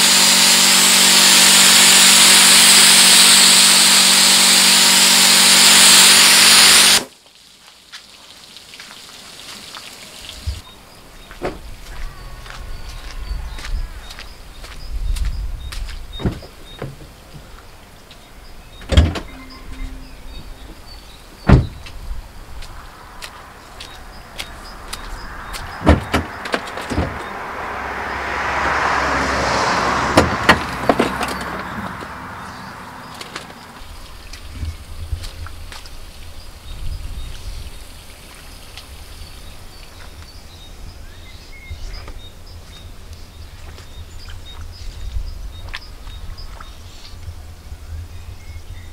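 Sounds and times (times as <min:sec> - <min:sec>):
car door thuds: 0:11.4 - 0:11.7, 0:21.4 - 0:21.9, 0:25.8 - 0:27.2
wind rumble on microphone: 0:11.6 - 0:16.8, 0:34.0 - 0:38.0, 0:40.0 - 0:48.9
faint short high chirps: 0:19.3 - 0:21.0.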